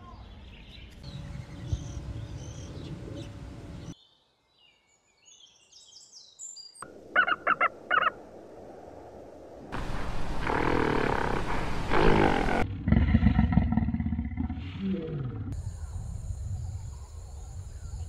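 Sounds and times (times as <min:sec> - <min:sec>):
bird chirping: 0:00.0 - 0:08.2, 0:15.6 - 0:18.0.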